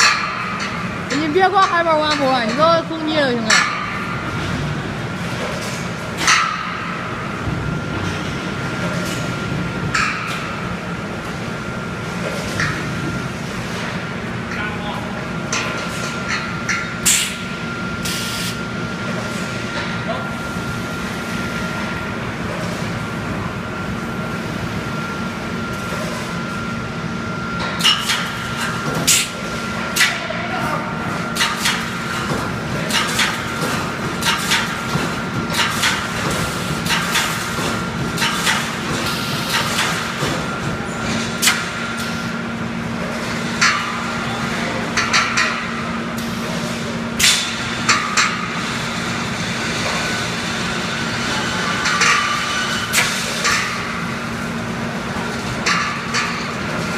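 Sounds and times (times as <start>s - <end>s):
machine humming: 0.0s - 5.3s.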